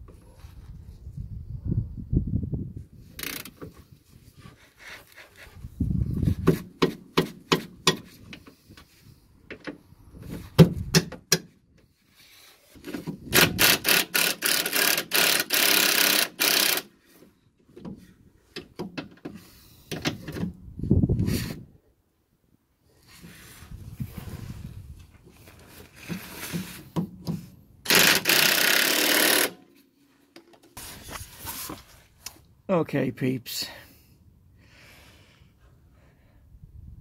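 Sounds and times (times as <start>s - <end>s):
ratchet spanner clicking: 13.3s - 16.9s, 27.9s - 29.6s
impact wrench hammering: 27.9s - 29.6s.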